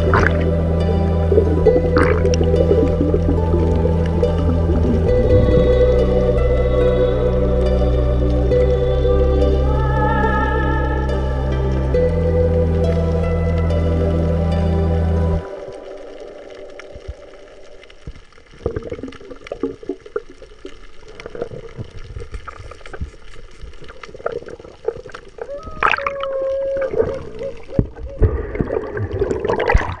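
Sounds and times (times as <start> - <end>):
bubbling water: 0.0 - 6.8, 15.4 - 30.0.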